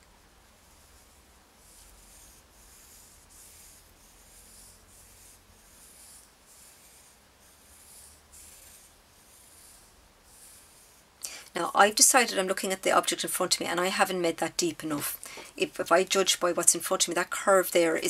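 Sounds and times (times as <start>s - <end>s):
pencil scratching on paper: 0.6s - 11.1s.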